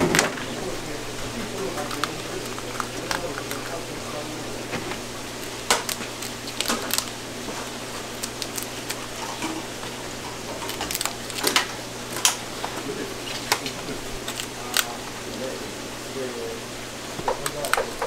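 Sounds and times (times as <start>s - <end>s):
scissors cracking lobster shell: 1.5s - 3.9s, 5.3s - 12.5s, 13.3s - 15.0s.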